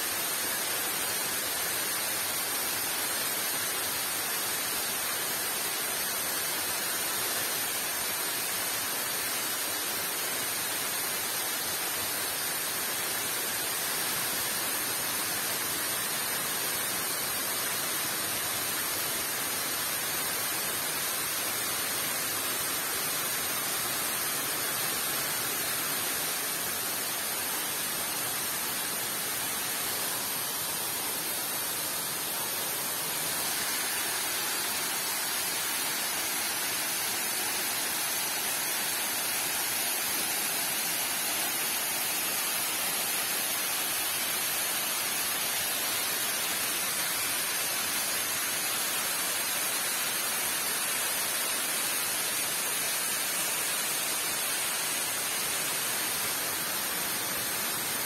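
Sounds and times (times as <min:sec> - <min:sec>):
falling water rushing: 0:00.0 - 0:58.0.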